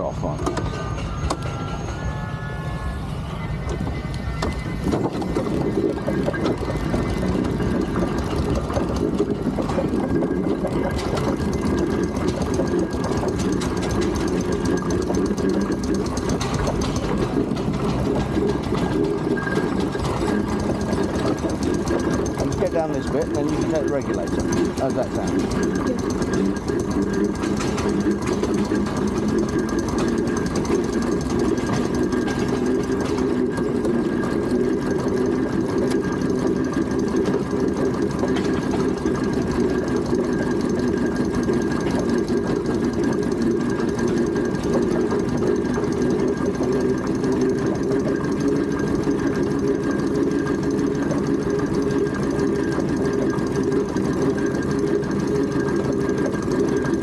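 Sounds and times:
steam traction engine running: 0.0 - 57.0.

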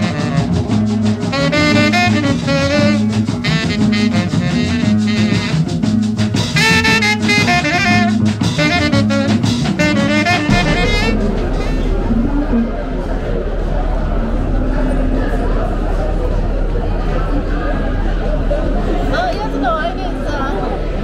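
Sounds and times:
upbeat jazz tune: 0.0 - 13.0.

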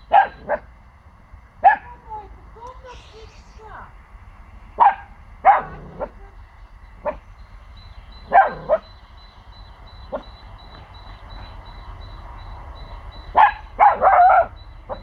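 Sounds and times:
puppy barking: 0.1 - 0.7, 1.6 - 1.9, 4.8 - 6.2, 8.3 - 8.8, 13.3 - 14.5.

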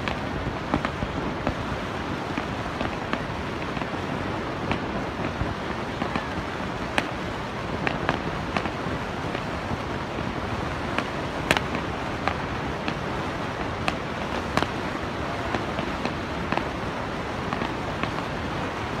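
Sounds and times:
fireworks popping and crackling: 0.0 - 19.0
waterfall roaring: 0.0 - 19.0.

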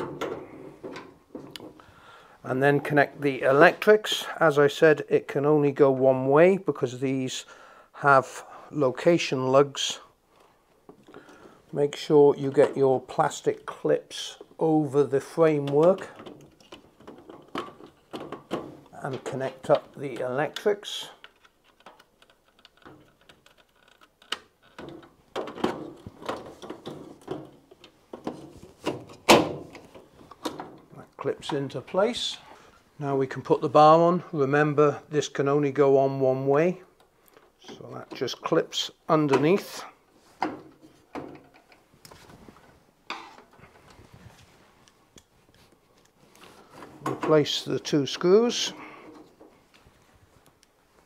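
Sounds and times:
small handling clicks: 19.2 - 28.0.

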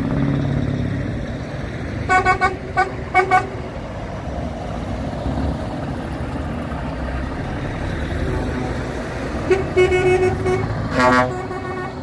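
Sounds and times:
diesel truck engine rumble: 0.0 - 12.0
truck horn: 2.1 - 3.6, 9.4 - 12.0.

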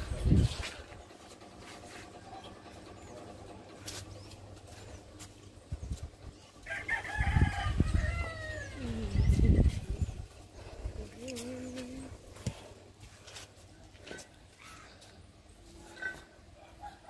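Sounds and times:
rooster crowing: 6.6 - 8.9.

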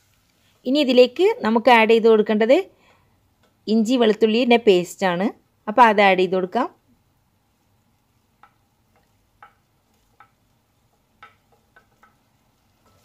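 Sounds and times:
wooden spoon tapping on plate: 8.4 - 12.2.

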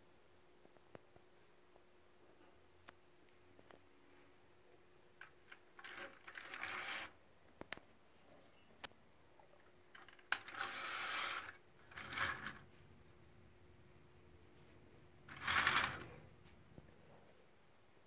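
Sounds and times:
toy tank tracks rattling and scraping: 5.4 - 7.1, 9.9 - 12.7, 15.3 - 16.3.

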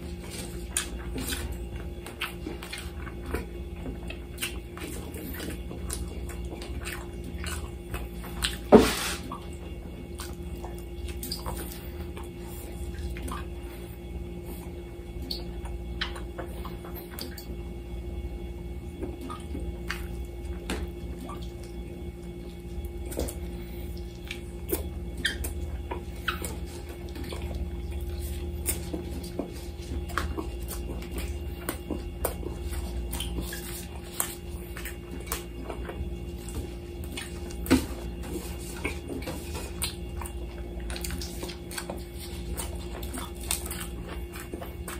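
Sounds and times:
wet chewing and lip smacking: 0.0 - 17.6, 19.0 - 44.9
steady low hum: 0.0 - 44.9.

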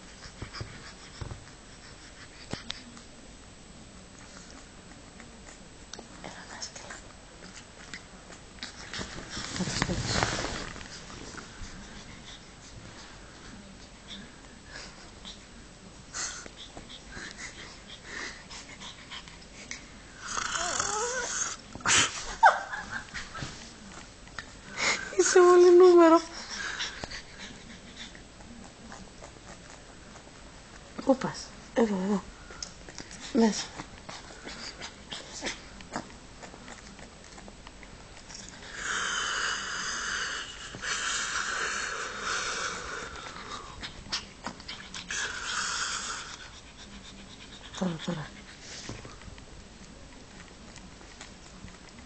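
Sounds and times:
faint rustles and clicks: 4.0 - 15.6, 46.4 - 52.0
puppy breathing with snuffles: 6.4 - 22.3, 23.2 - 31.6, 32.5 - 49.3
puppy snorting: 16.1 - 22.3, 26.1 - 31.0, 32.7 - 49.3
puppy yawning with a whine: 20.2 - 22.6.

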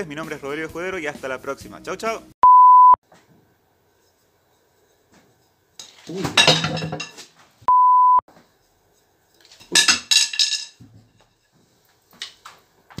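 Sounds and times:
steady electronic beep: 2.4 - 3.0, 7.7 - 8.2.

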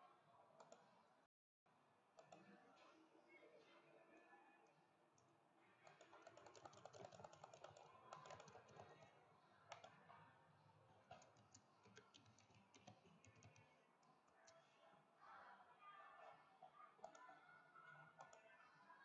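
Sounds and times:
typing on computer keyboard: 5.8 - 9.1, 11.1 - 13.7.

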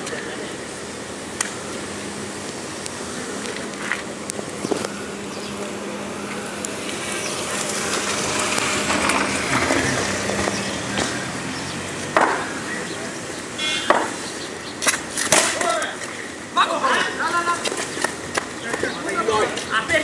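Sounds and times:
small car driving past: 4.8 - 13.2.

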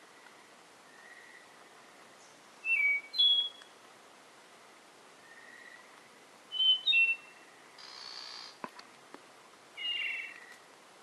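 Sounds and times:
bird singing whistled notes: 2.2 - 3.8, 6.5 - 8.5, 9.8 - 10.5.

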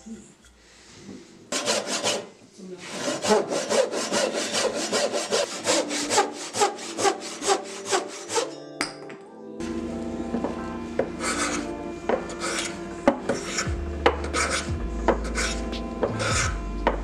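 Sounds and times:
handsaw cutting wood: 1.5 - 8.6, 11.0 - 16.6.

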